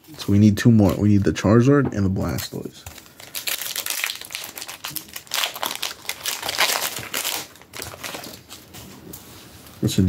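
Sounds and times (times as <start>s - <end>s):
foil wrapper crinkling: 2.3s - 8.8s.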